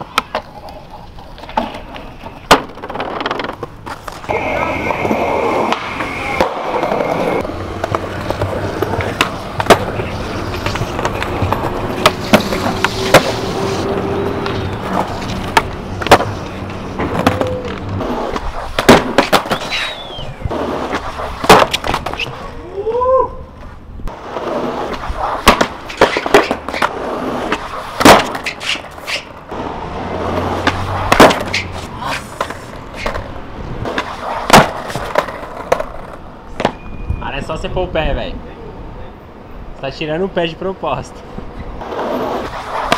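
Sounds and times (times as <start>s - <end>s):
skateboard clacking on ground: 0.0s - 22.5s, 23.6s - 29.6s, 30.2s - 36.9s, 41.8s - 42.9s
skateboard wheels rolling on pavement: 0.0s - 42.9s
skateboard tail pops: 2.4s - 10.0s, 14.9s - 16.4s, 17.0s - 22.4s, 24.3s - 29.4s, 30.3s - 36.8s.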